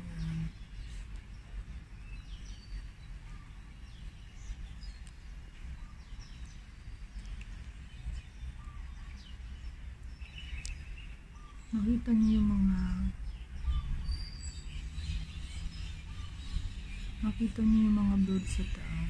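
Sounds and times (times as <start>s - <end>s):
birds chirping: 0.0s - 19.0s
wind buffeting microphone: 7.5s - 19.0s.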